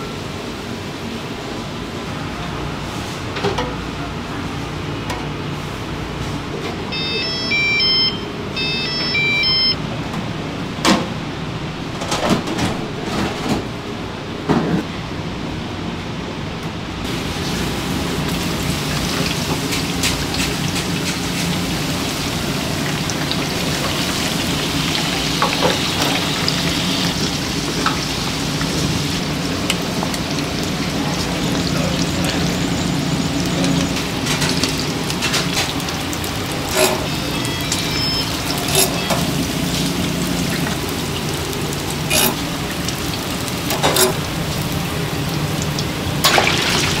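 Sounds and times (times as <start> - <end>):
oil sizzling with pops: 18.2 - 31.6.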